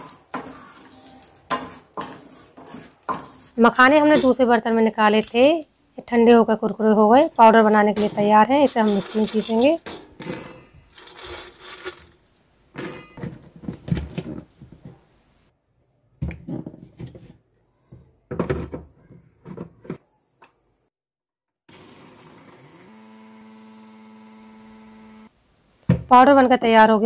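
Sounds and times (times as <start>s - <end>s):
seeds clattering into steel jar: 4.9s - 5.8s
mixer grinder motor whining: 21.7s - 25.3s.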